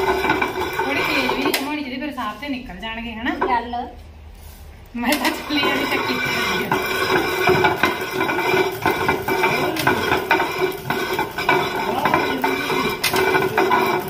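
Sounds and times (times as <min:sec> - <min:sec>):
stone mill grinding: 0:00.0 - 0:02.1, 0:05.1 - 0:14.0.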